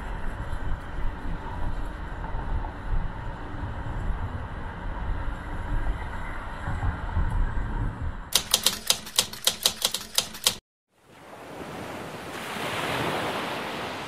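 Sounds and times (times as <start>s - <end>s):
typewriter key clicks: 8.4s - 10.6s.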